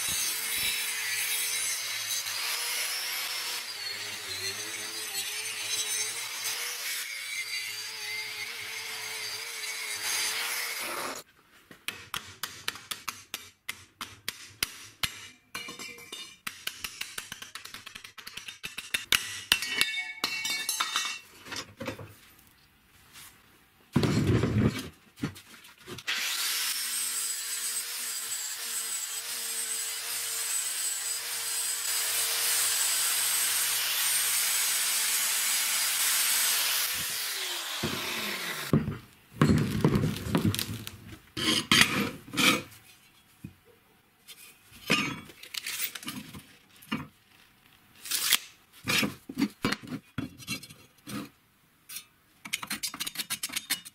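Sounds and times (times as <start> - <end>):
angle grinder cutting steel: 0.0 - 11.2, 26.1 - 38.7.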